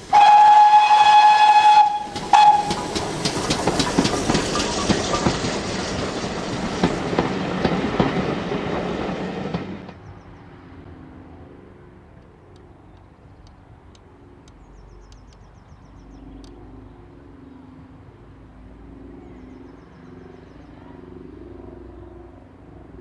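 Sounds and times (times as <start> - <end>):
vehicle engine rumbling: 0.0 - 8.9
sharp clicks: 12.2 - 15.6.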